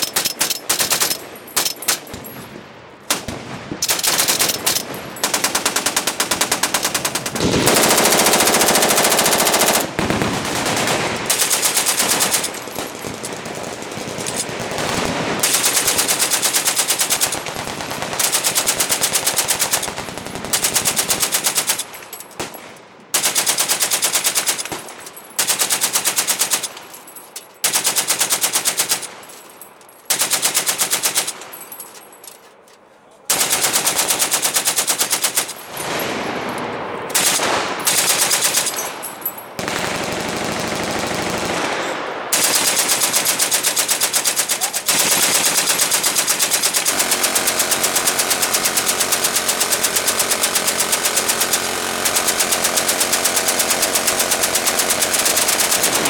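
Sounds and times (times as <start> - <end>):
machine gun bursts: 3.1 - 22.5, 33.3 - 56.0.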